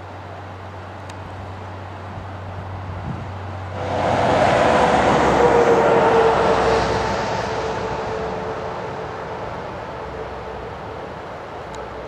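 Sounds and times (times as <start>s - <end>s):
vehicle passing by: 3.5s - 10.6s.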